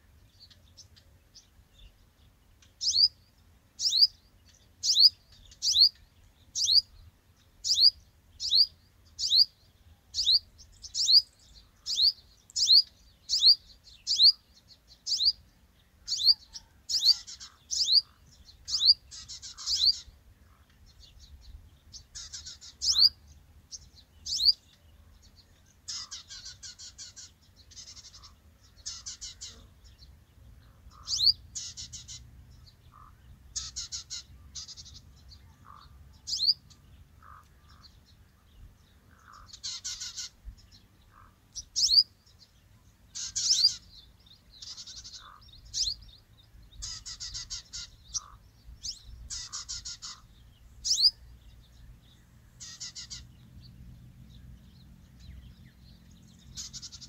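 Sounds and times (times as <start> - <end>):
bird rapid chattering: 46.8 - 48.4, 49.3 - 50.2, 52.6 - 53.2.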